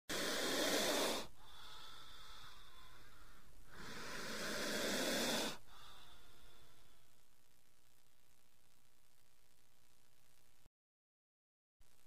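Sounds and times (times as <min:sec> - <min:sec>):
snake hissing: 0:00.1 - 0:06.9.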